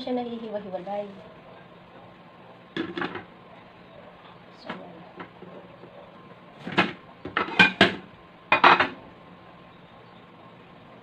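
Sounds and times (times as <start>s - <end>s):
plates clattering on table: 2.8s - 3.2s, 6.6s - 9.0s.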